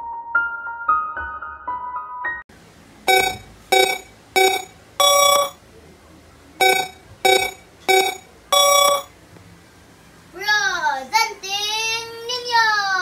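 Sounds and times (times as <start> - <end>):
electronic countdown beeps: 3.1 - 5.6, 6.6 - 9.1.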